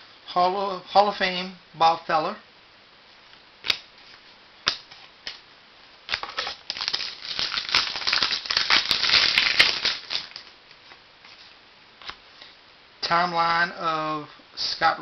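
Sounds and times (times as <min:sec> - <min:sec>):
wrapper crinkling: 0:06.1 - 0:10.5.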